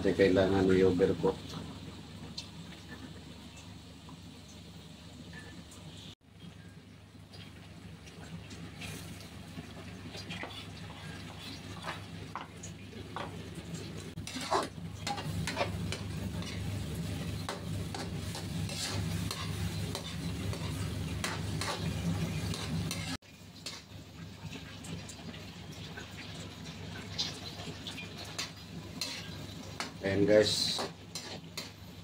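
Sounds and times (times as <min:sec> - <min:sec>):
spatula scraping a wok: 0:14.1 - 0:23.9, 0:28.2 - 0:30.0, 0:30.6 - 0:31.8.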